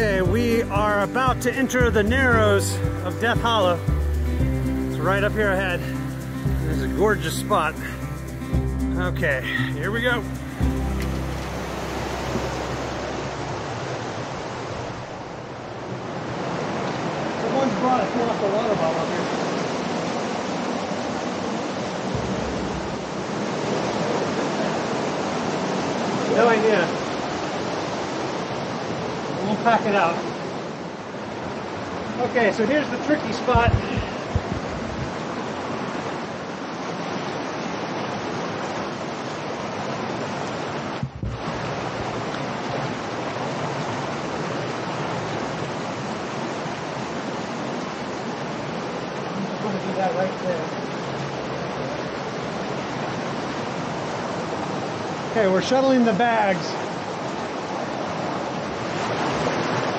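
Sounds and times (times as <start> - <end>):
creek water rushing: 0.0 - 59.9
low thump: 22.1 - 23.8, 33.5 - 35.2, 41.0 - 41.8.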